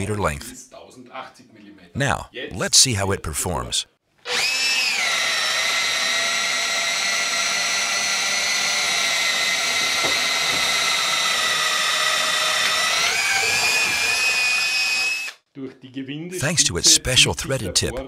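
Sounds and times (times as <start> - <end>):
power drill boring into wood: 4.2 - 15.4.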